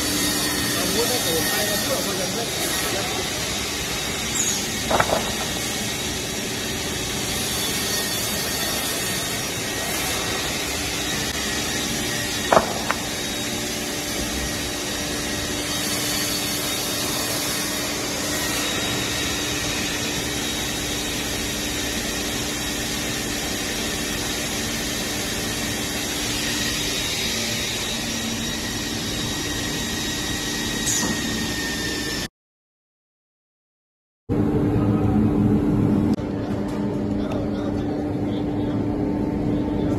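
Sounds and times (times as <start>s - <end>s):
saw line hum and hiss: 0.0s - 32.3s
sharp knock: 4.9s - 5.7s, 12.5s - 13.2s.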